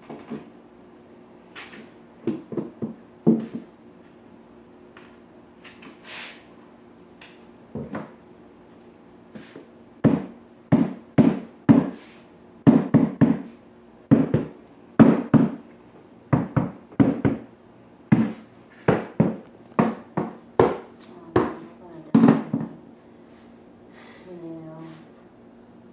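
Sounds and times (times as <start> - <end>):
hammer knocking on vinyl planks: 2.2 - 3.7, 10.0 - 12.0, 12.6 - 15.6, 16.3 - 17.5, 18.1 - 22.8.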